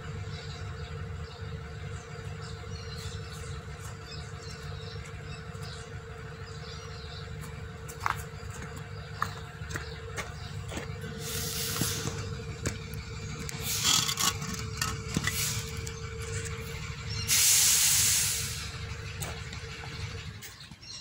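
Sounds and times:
bird chirps: 0.0 - 21.0
constant hum: 0.0 - 21.0.

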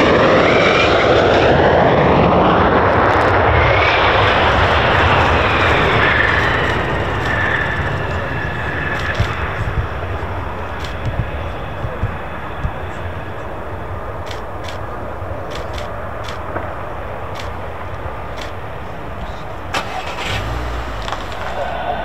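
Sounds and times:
jet engines roaring and whining: 0.0 - 22.0.

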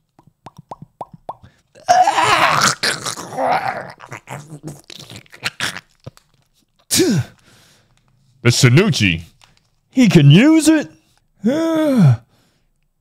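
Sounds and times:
man groaning: 1.8 - 4.6, 11.4 - 12.2
man screaming with gargling: 1.8 - 5.8.

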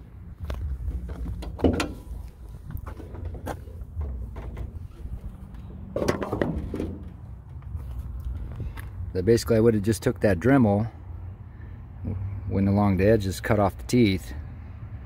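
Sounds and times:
steady low rumble: 0.0 - 9.3
car hood latch clicks and clunks: 1.2 - 2.2, 2.8 - 5.2, 6.0 - 7.2.

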